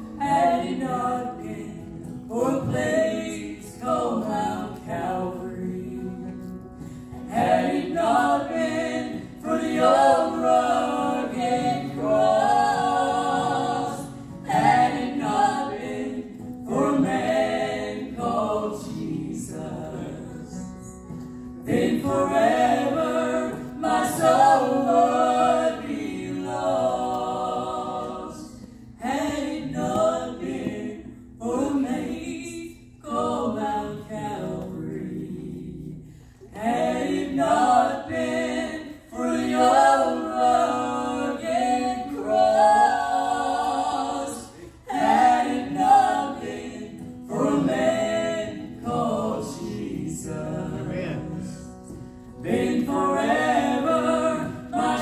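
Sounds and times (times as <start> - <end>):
people singing in harmony: 0.0 - 55.0.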